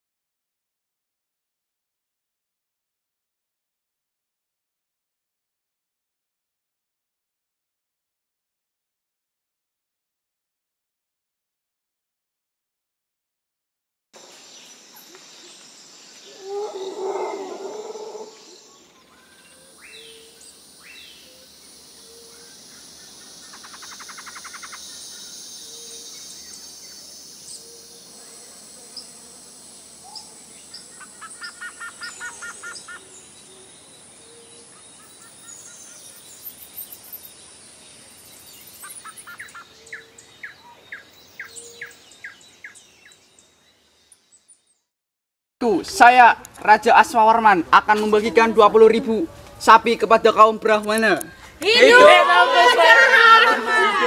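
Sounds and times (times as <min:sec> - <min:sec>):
high insect-like hiss: 0:14.2 - 0:44.5
birds chirping and trilling: 0:14.2 - 0:44.9.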